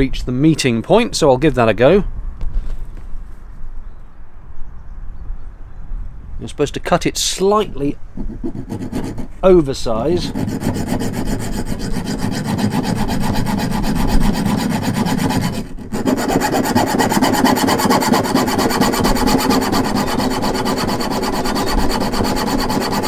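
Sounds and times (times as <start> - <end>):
hacksaw sawing: 8.2 - 23.0.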